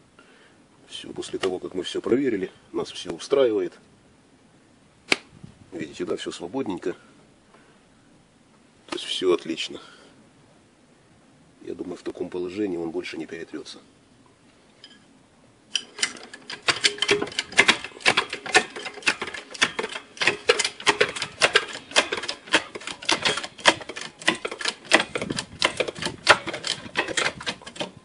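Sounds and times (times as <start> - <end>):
rapid mechanical clicking: 15.8 - 28.0.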